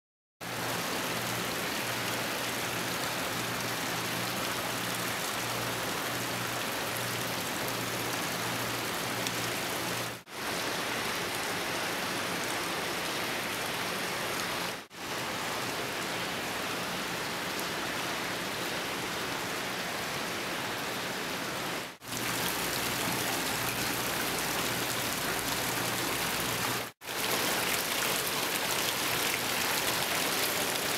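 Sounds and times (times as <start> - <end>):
fountain water splashing into basin: 22.0 - 30.9.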